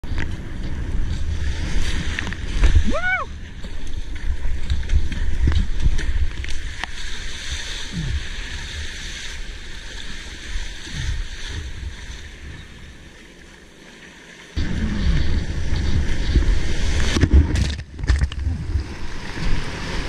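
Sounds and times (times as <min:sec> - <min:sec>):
wind buffeting microphone: 0:00.0 - 0:07.0, 0:14.6 - 0:20.0
paddle strokes in water: 0:00.0 - 0:20.0
water splashing and rushing: 0:00.0 - 0:20.0.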